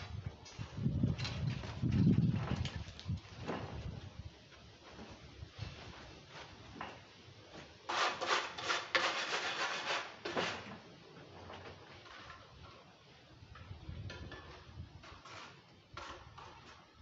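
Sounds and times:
hand tool scraping mortar: 0:07.8 - 0:10.8, 0:14.3 - 0:17.0.

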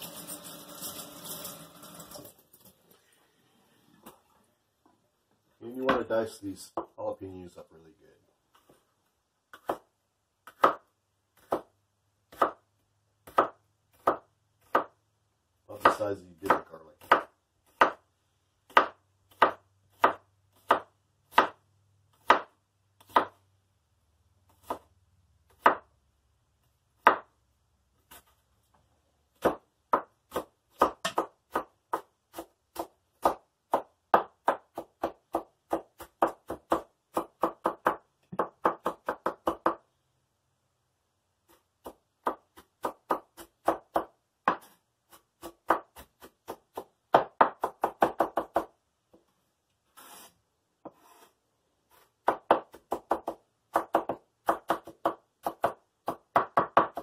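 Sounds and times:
knife chopping on wooden board: 0:09.5 - 0:11.7, 0:12.3 - 0:12.6, 0:13.2 - 0:15.0, 0:15.8 - 0:18.0, 0:18.7 - 0:21.6, 0:22.2 - 0:23.4, 0:25.5 - 0:25.9, 0:27.0 - 0:27.3, 0:29.4 - 0:39.8, 0:41.8 - 0:48.7, 0:52.2 - 0:57.0.

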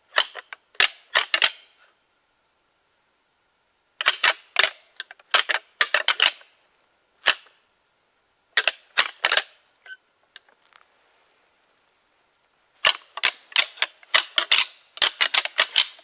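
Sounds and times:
antlers clacking together: 0:00.1 - 0:01.6, 0:04.0 - 0:06.5, 0:08.6 - 0:09.5, 0:12.8 - 0:16.0.

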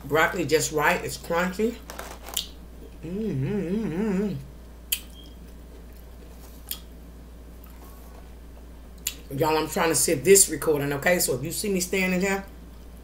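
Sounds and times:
woman humming with food: 0:03.0 - 0:04.5.

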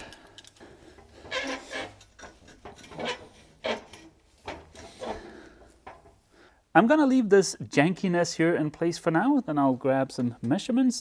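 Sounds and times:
rubbing and scraping handling: 0:00.4 - 0:06.2.

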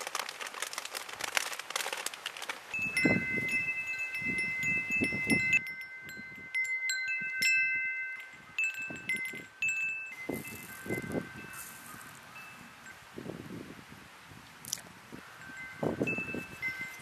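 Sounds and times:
wind chime ringing: 0:02.7 - 0:13.0, 0:15.4 - 0:17.0
low wind rumble: 0:02.7 - 0:17.0.

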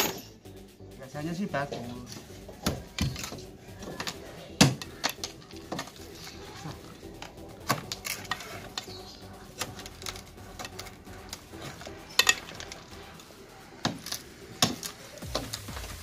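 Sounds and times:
steel bar clinking on concrete: 0:12.0 - 0:12.8.

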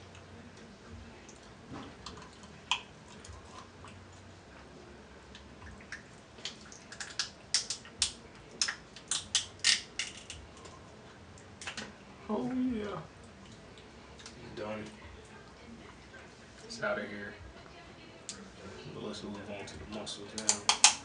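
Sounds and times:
shellfish shells cracking: 0:06.4 - 0:10.4, 0:20.4 - 0:21.0.

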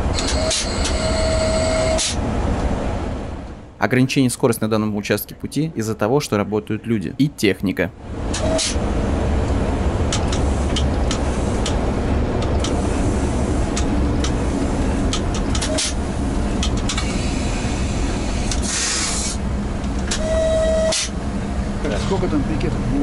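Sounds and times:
locomotive running gear rumble: 0:00.0 - 0:23.0
air hiss: 0:17.0 - 0:19.5.

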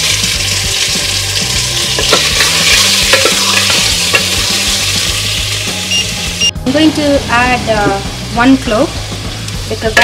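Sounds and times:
chicken sizzling in hot oil: 0:00.0 - 0:06.5.

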